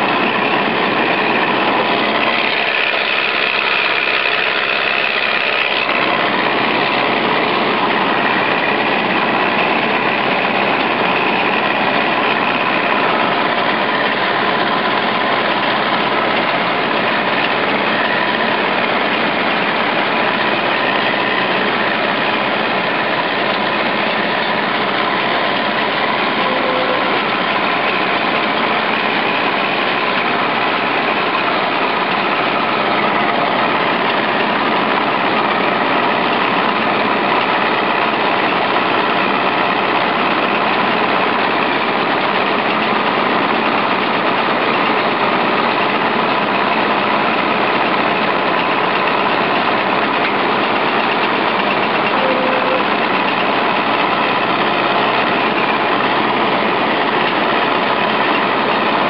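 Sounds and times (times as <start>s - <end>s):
combine harvester engine drone: 0.0s - 59.0s.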